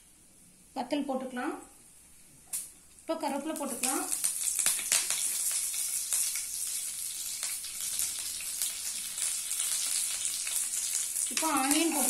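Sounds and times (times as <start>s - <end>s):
spices sizzling in hot oil: 2.5s - 12.0s.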